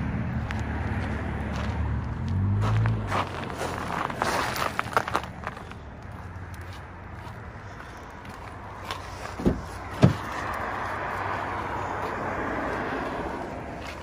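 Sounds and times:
car door clunks: 9.4 - 10.3.

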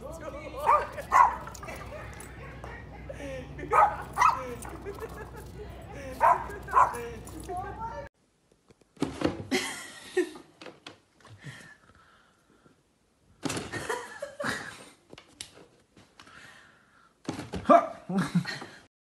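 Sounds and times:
person laughing softly: 0.8 - 6.6.

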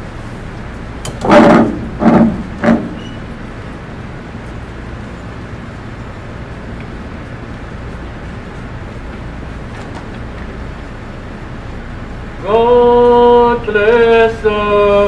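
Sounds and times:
low room hum: 0.0 - 15.0
man calling out: 12.4 - 15.0.

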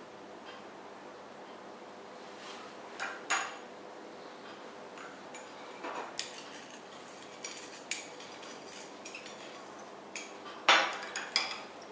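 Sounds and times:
faint steady hum: 0.0 - 11.9
glassware clinking: 10.2 - 11.7.

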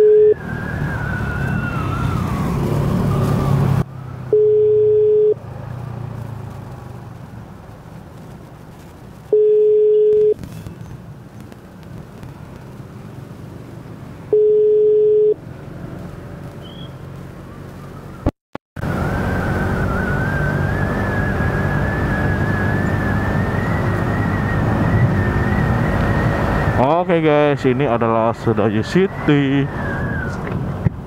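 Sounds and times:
phone ringback beeps: 0.0 - 0.4, 4.3 - 5.4, 9.3 - 10.4, 14.3 - 15.4
motorcycle engine whine: 0.0 - 7.5, 9.3 - 31.0.

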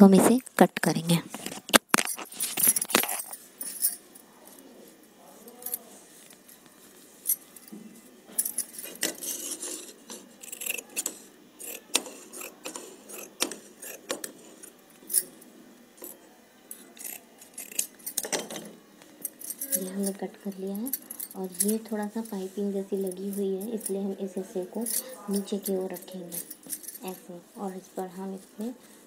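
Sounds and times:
bangles clinking: 1.9 - 4.2, 7.2 - 28.4.

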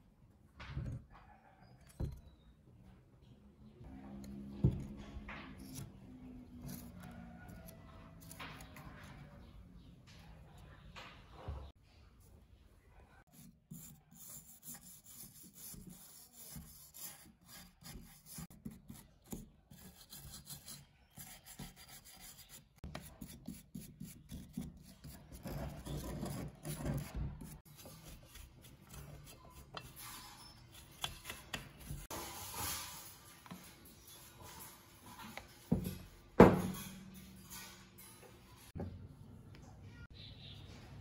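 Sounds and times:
hand tool scraping metal: 23.2 - 35.8.

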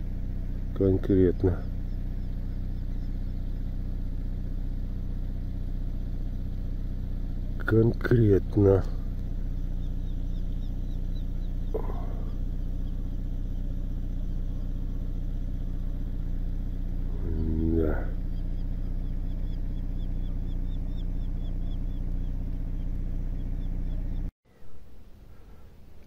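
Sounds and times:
drawn-out call: 0.0 - 24.3
steady low hum: 0.0 - 26.0
faint high chirps: 9.0 - 24.9.

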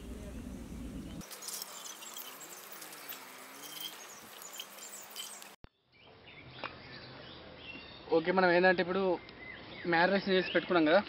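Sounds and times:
insects: 0.0 - 5.6
birds chirping: 0.0 - 11.0.

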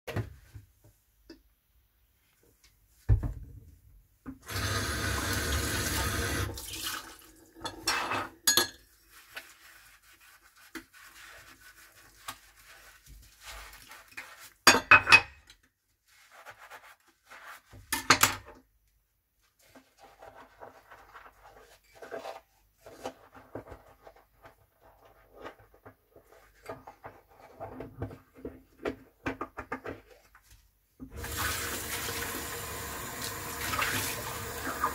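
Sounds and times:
cups and spoons clinking: 7.6 - 8.9
sponge scrubbing a cup: 8.9 - 14.7, 16.0 - 17.9, 19.4 - 27.8.

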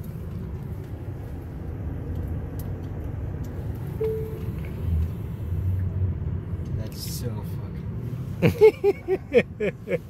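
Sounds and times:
low cabin rumble of car: 0.0 - 10.0
short tone: 4.0 - 4.6.

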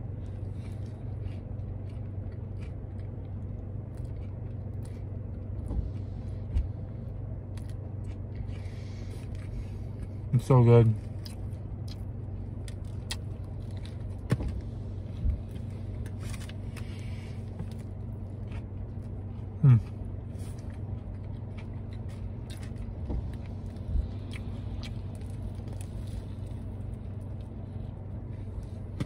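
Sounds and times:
chewing crispy food: 0.0 - 29.0
low car hum: 0.0 - 29.0
person humming mm: 19.6 - 19.8.

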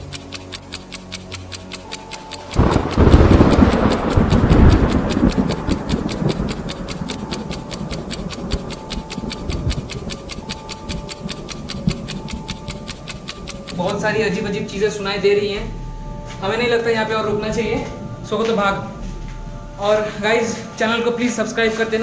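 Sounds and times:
fast even ticking: 0.0 - 14.0.

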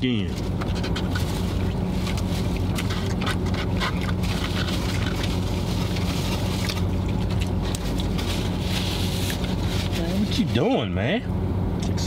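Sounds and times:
car engine hum inside cabin: 0.0 - 12.0.

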